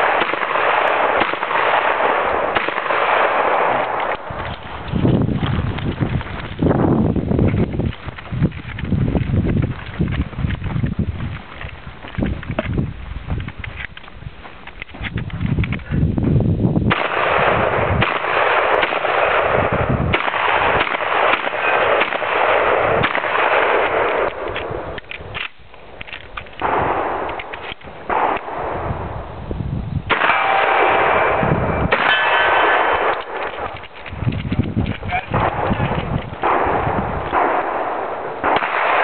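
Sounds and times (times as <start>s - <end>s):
shotgun shots: 0.0s - 4.8s, 16.9s - 25.5s, 26.6s - 28.8s, 30.1s - 39.0s.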